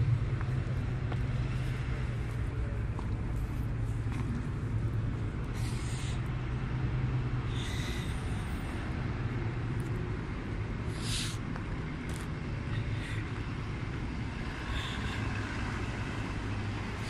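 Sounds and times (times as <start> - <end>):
diesel locomotive engine idling: 0.0 - 17.0
short hisses: 5.6 - 6.2, 10.9 - 11.4.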